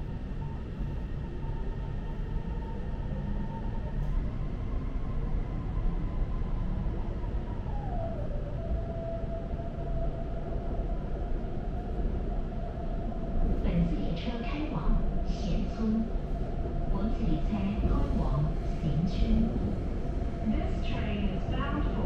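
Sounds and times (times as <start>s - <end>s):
train deep rumble and hiss: 13.0s - 22.0s.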